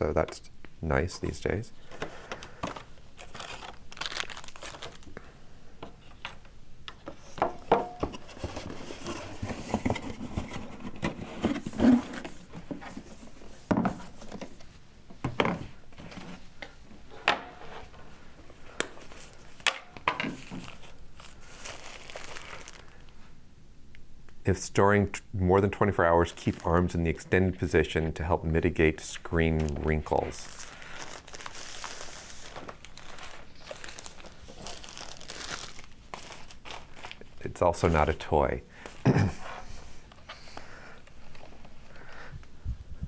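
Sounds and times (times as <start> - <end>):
plastic bag crinkling: 2.4 - 5.2, 20.4 - 23.1, 30.1 - 37.5.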